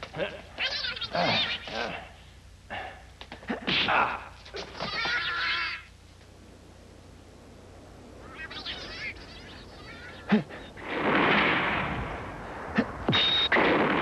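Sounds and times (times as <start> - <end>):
pyrotechnic explosions: 10.7 - 14.0.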